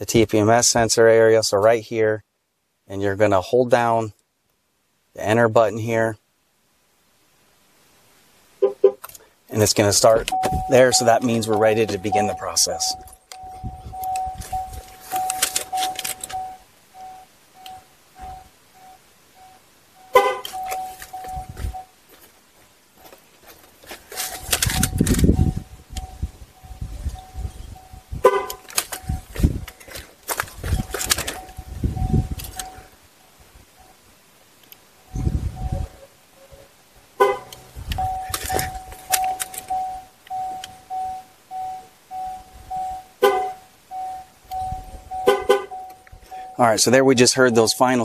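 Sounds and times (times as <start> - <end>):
car horn chirps: 8.6 - 9.1, 20.0 - 21.8, 28.2 - 28.7, 37.2 - 46.7
car horn honk: 8.6 - 9.1, 20.1 - 21.0, 28.2 - 28.7, 37.2 - 37.6, 43.2 - 43.7, 44.7 - 46.6
high-pitched tool beeping: 10.2 - 18.5
short electronic beeps: 10.2 - 21.9, 37.2 - 46.7
scuffing handling noise: 20.5 - 24.8, 28.8 - 31.7.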